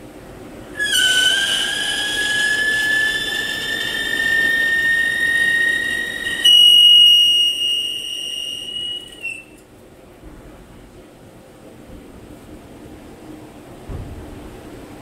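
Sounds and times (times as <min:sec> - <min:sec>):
lathe tool screeching: 0:00.8 - 0:09.5.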